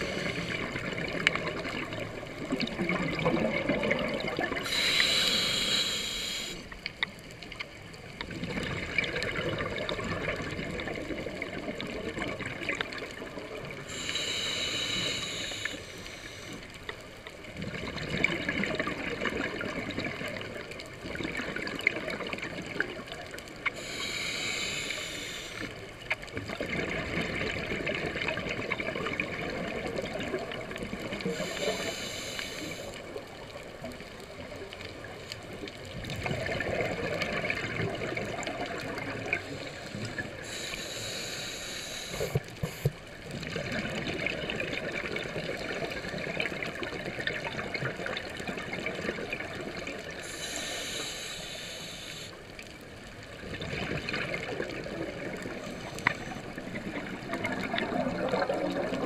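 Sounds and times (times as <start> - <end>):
exhaled bubbles gurgling: 0.0 - 6.6, 8.0 - 16.7, 17.4 - 59.0
regulator hissing inhales: 4.6 - 6.8, 13.9 - 16.7, 23.7 - 25.8, 31.2 - 33.1, 39.3 - 43.0, 50.2 - 52.4.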